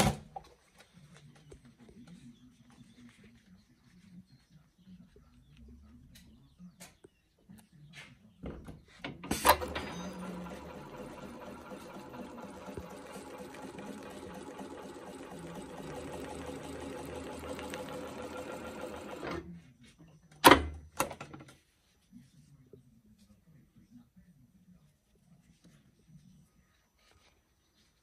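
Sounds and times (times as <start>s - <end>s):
sewing machine running: 9.3s - 19.4s.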